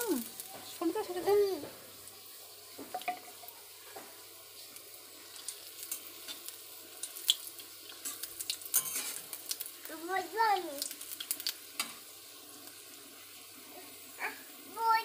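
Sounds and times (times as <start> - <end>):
spices sizzling in hot oil: 0.0 - 15.0
metal spatula stirring: 7.9 - 9.4.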